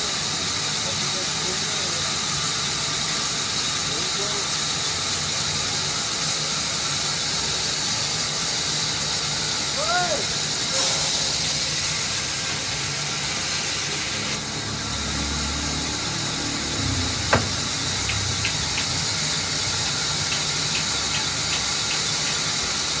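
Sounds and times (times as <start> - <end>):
band saw cutting log: 10.4 - 23.0
low rumble: 15.4 - 20.6
sharp knock: 16.9 - 19.3.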